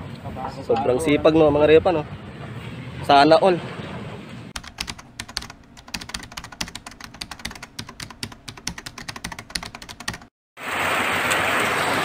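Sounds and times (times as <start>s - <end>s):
keyboard typing clicks: 4.6s - 10.3s.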